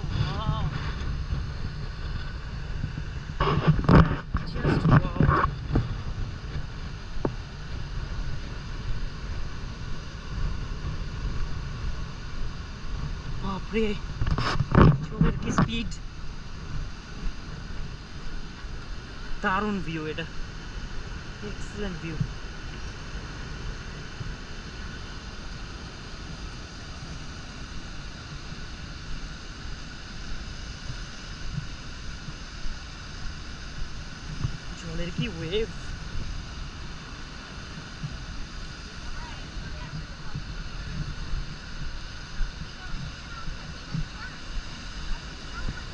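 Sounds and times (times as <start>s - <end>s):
rapids rushing over waterfall: 0.0s - 45.9s
wind buffeting microphone: 0.0s - 45.9s.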